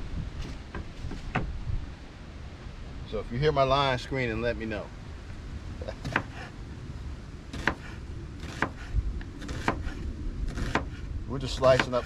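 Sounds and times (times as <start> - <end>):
knife chopping on wooden board: 6.0 - 6.5, 7.6 - 11.0, 11.6 - 12.0.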